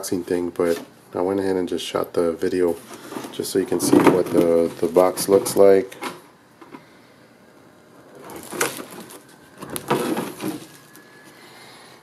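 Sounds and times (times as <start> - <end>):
cardboard packaging rustling: 2.9 - 5.8, 8.1 - 11.5.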